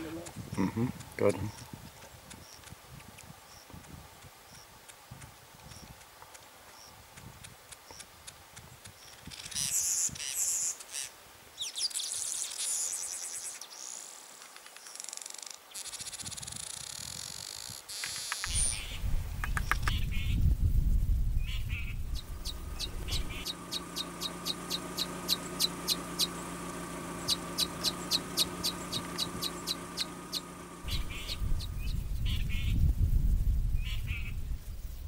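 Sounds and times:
faint high bird chirps: 0:18.3 - 0:20.4, 0:21.4 - 0:26.5, 0:27.1 - 0:32.8
buzzy wheezing bird chatter: 0:27.1 - 0:31.6.

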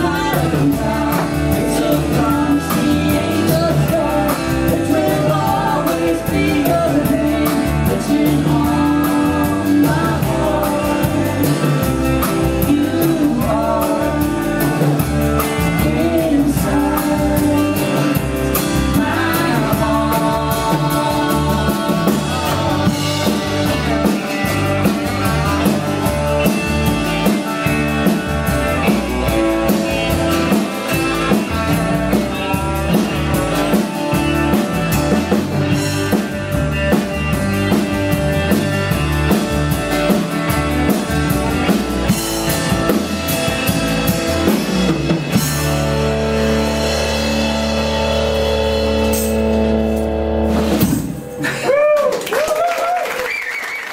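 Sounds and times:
person singing: 0:00.0 - 0:34.6
drum kit: 0:00.0 - 0:53.2
guitar: 0:00.0 - 0:53.9.

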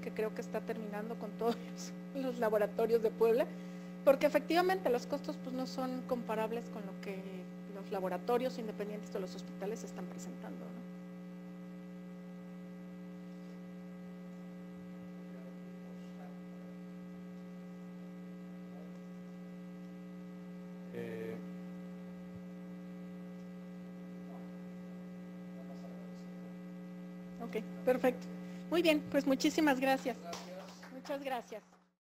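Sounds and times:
electrical mains hum: 0:00.0 - 0:31.9.

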